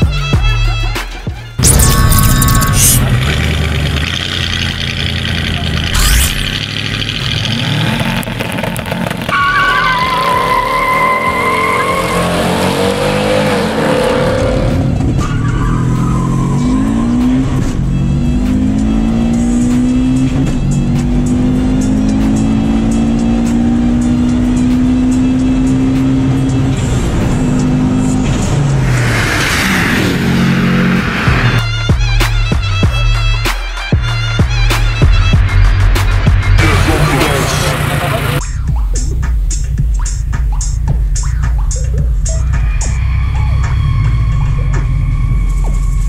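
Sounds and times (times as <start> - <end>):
car engine at full throttle: 1.6 - 31.6, 35.5 - 46.0
tyre squeal: 8.6 - 12.6.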